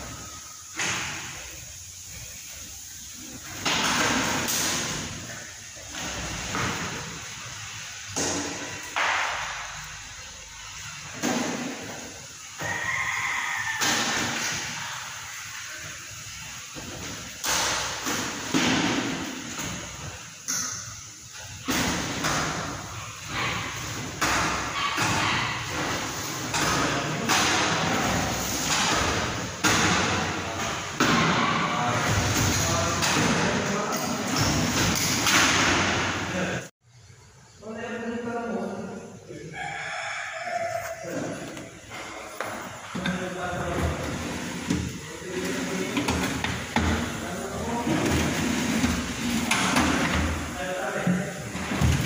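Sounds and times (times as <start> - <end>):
people talking: 31.1 - 35.0, 37.6 - 39.7, 40.9 - 41.6, 42.9 - 48.4, 50.5 - 51.9
metal drawers opening and closing: 47.8 - 50.5, 51.4 - 52.0.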